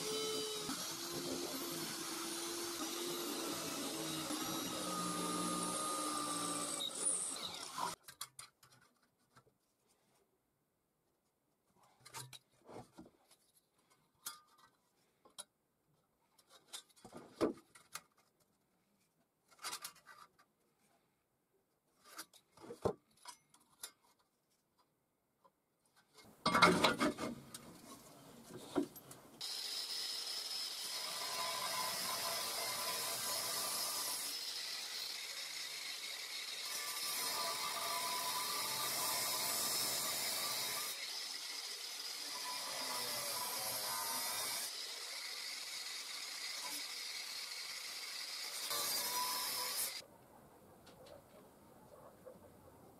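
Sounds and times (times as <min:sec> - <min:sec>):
angle grinder cutting steel: 0:00.0 - 0:08.0, 0:29.4 - 0:50.0.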